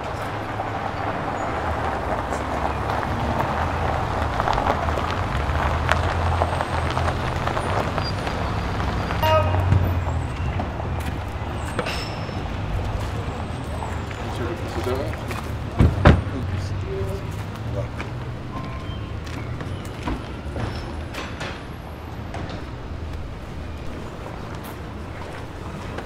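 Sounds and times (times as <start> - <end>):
tyres crunching on gravel: 0.0 - 20.4
engine humming low: 0.0 - 25.8.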